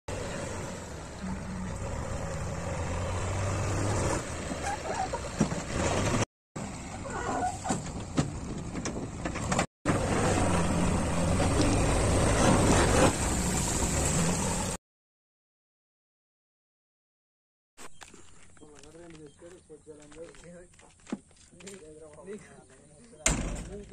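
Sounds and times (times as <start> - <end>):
diesel engine revving: 0.1 - 7.0, 8.0 - 14.8.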